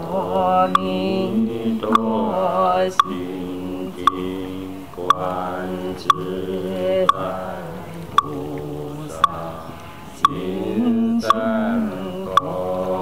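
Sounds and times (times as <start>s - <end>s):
person chanting: 0.0s - 13.0s
ringing knock keeping beat: 3.0s - 3.2s, 4.0s - 4.4s, 5.0s - 5.5s, 10.2s - 10.6s, 12.3s - 12.6s.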